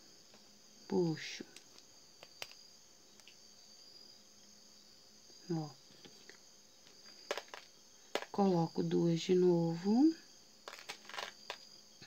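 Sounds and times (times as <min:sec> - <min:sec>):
plastic beads clicking: 0:01.6 - 0:02.6, 0:07.3 - 0:08.4, 0:10.6 - 0:11.6.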